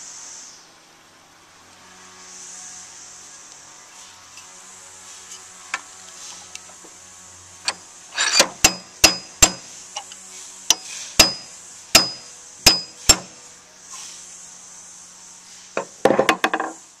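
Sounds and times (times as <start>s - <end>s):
hammer striking steel punch: 8.2s - 9.6s, 10.7s - 13.4s.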